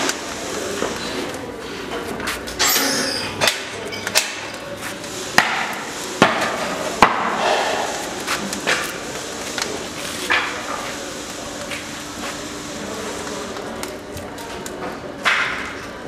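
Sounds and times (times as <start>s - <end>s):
wood fire cracking and popping: 3.4s - 12.0s, 13.2s - 16.0s
hiss of burning kindling: 4.8s - 14.7s.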